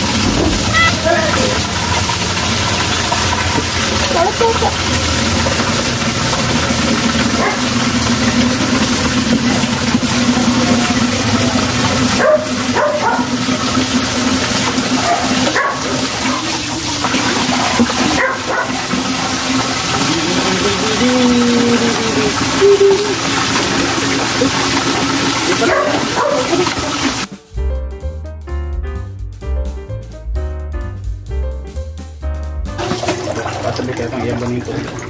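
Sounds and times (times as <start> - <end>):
dog yipping: 7.4 - 7.6, 12.2 - 13.3, 15.0 - 16.4, 18.1 - 18.8, 25.6 - 26.7.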